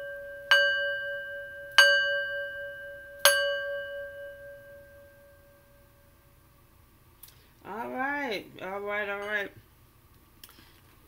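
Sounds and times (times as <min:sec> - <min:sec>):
singing bowl ringing: 0:00.0 - 0:06.4.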